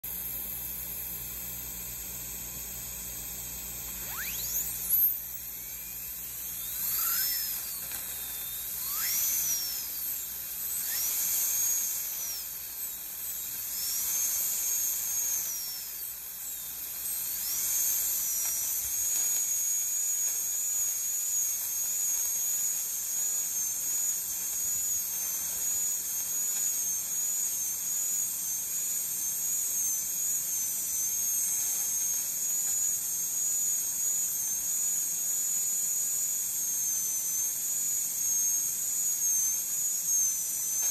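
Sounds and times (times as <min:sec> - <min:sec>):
dental drill whine: 0:00.0 - 0:40.9.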